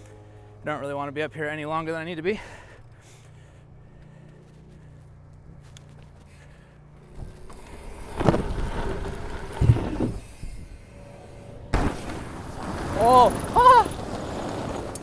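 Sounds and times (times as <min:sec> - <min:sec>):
bike rolling down wooden ramp: 0:07.0 - 0:10.8, 0:11.7 - 0:15.0.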